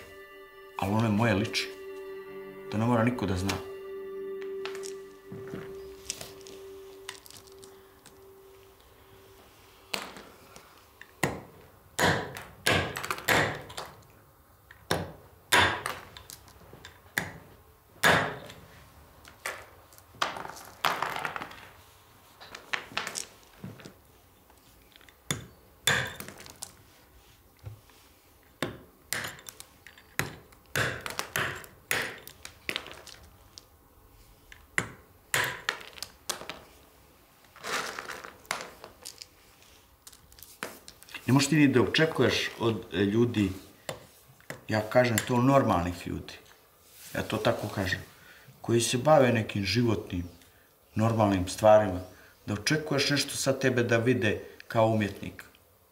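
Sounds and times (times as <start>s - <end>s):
hammer cracking stone: 12.0s - 13.9s, 14.9s - 16.1s, 25.3s - 26.5s, 28.6s - 29.6s, 30.2s - 33.2s, 34.8s - 36.6s.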